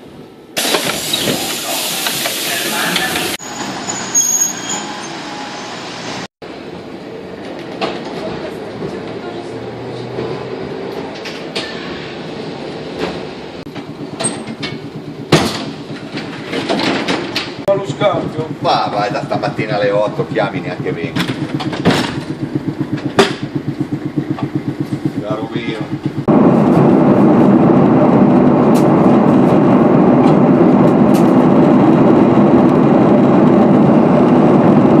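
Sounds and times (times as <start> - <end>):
tram running rumble and rattle: 0.0 - 35.0
airliner cabin engine roar: 5.0 - 35.0
loud clunk: 13.0 - 17.7, 21.1 - 23.7
knocks: 20.6 - 26.3.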